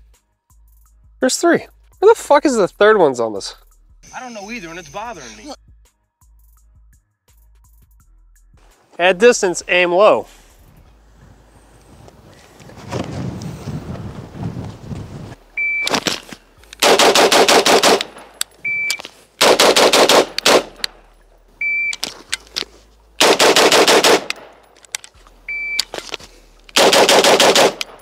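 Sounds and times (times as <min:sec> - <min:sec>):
short high beep: 0:04.0 - 0:05.5, 0:15.6 - 0:15.9, 0:18.6 - 0:19.0, 0:21.6 - 0:22.0, 0:25.5 - 0:25.8
rapid gunshots: 0:16.8 - 0:18.3, 0:19.4 - 0:20.9, 0:23.2 - 0:24.5, 0:26.8 - 0:28.0.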